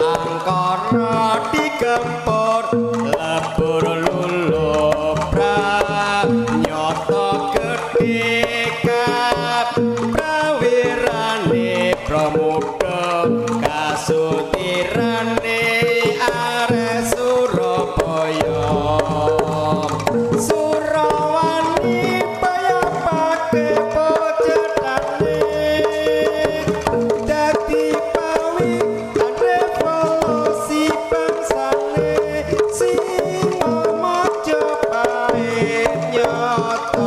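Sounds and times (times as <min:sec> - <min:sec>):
pitched melody: 0:00.0 - 0:09.3, 0:16.0 - 0:31.7
hand drums beating: 0:00.0 - 0:37.0
deep sustained low notes: 0:18.4 - 0:20.4.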